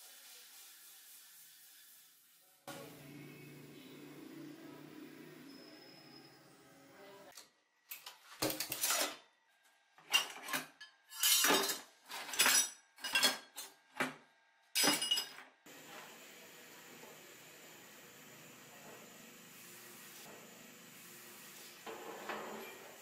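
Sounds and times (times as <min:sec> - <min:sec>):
scrap metal clanking in a crate: 0:10.1 - 0:13.4.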